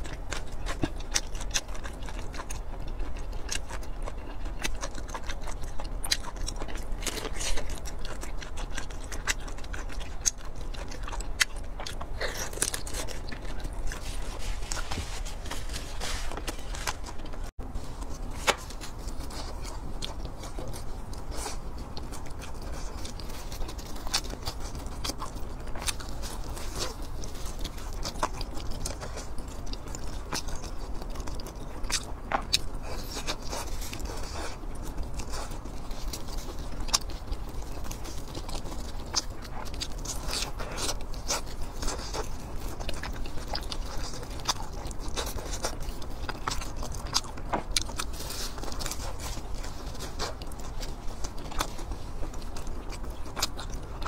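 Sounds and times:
person biting and chewing food: 0.0s - 54.0s.

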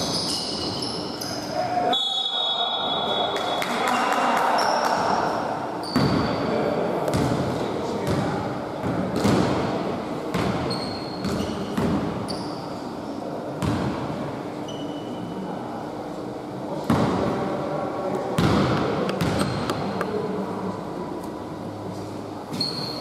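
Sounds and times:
shoes squeaking on floor: 0.0s - 1.6s, 5.8s - 6.4s, 10.6s - 12.8s, 14.7s - 15.2s, 22.5s - 23.0s.

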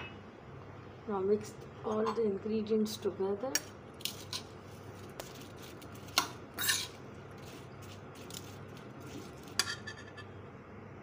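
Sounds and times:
spoon clinking in metal bowl: 9.5s - 10.3s.

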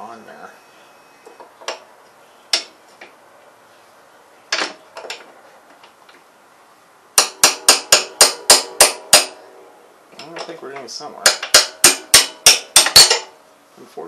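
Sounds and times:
hammer striking metal rod: 7.2s - 9.4s, 11.2s - 13.4s.

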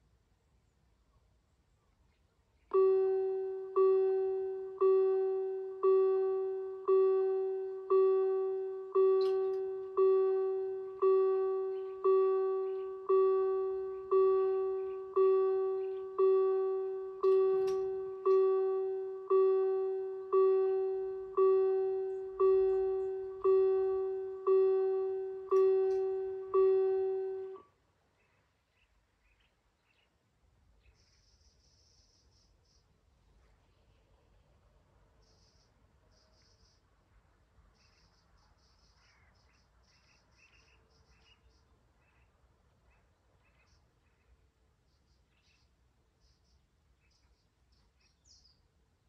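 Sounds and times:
level crossing warning bell: 2.7s - 27.7s.

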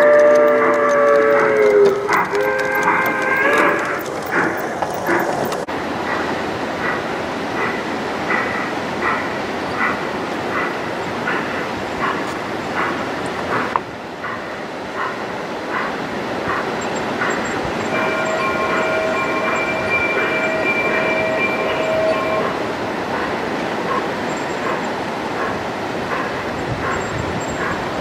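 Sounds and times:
model train rolling on track: 0.0s - 28.0s
train horn blast: 18.0s - 22.6s.

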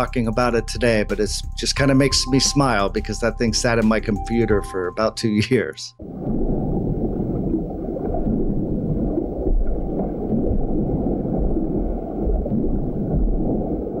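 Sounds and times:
underwater rumble and gurgle: 6.0s - 14.0s.

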